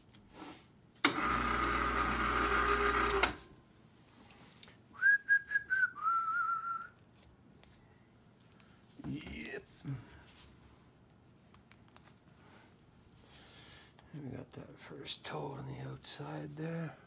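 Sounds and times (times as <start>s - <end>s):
small motor running: 1.1s - 3.4s
person whistling: 5.0s - 7.0s.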